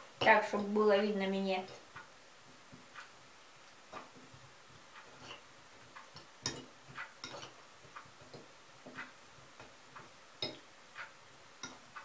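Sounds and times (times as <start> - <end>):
fork clinking on ceramic bowl: 5.2 - 5.4, 6.4 - 7.6.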